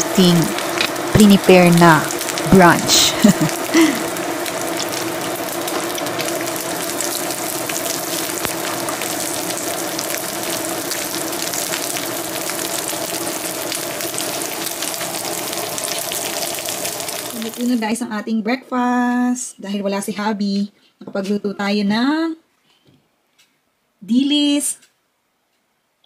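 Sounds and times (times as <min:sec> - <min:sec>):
food frying in hot oil: 0:00.0 - 0:18.0
steady hum: 0:00.0 - 0:18.0.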